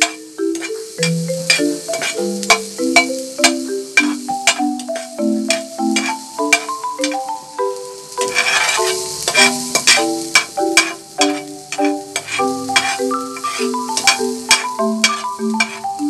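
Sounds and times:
spatula scraping a pan: 0.0 - 7.3, 8.2 - 16.0
background music melody: 0.0 - 16.0
onion sizzling in hot oil: 0.0 - 16.0.

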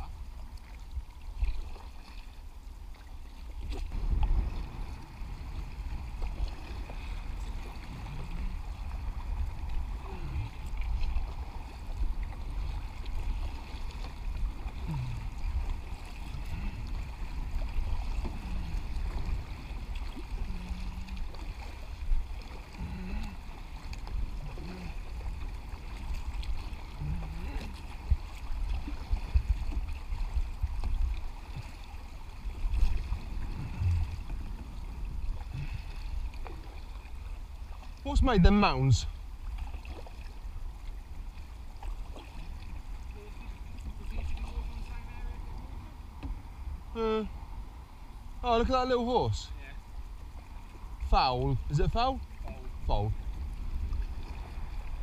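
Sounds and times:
water splashing around paddles: 0.0 - 55.0
steady low rumble: 3.9 - 13.4, 23.9 - 36.3.

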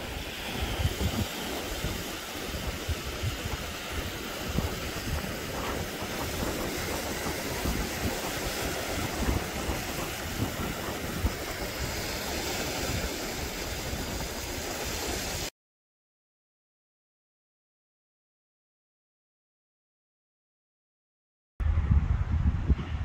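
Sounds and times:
wind and surf rushing: 0.0 - 15.5, 21.6 - 23.0
wind buffeting microphone: 0.0 - 15.5, 21.6 - 23.0.

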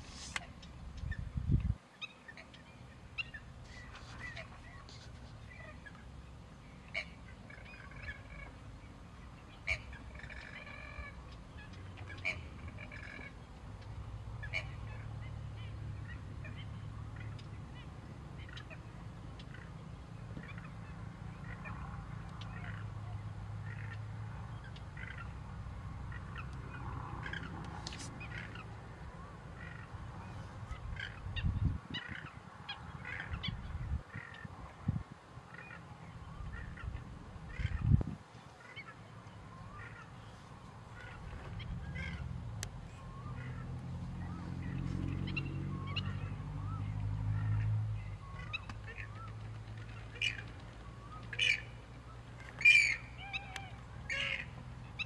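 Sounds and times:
wading birds calling: 0.0 - 55.0
low steady rumble: 2.4 - 55.0.

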